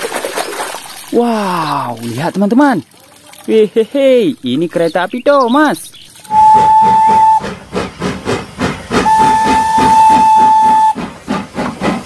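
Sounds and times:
train whistle: 0:06.3 - 0:07.6, 0:08.9 - 0:11.1
steam locomotive chuffing: 0:06.3 - 0:12.0.

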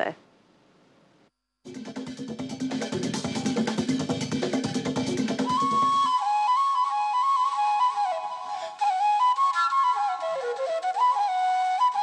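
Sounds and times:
solo flute melody: 0:05.4 - 0:12.0.

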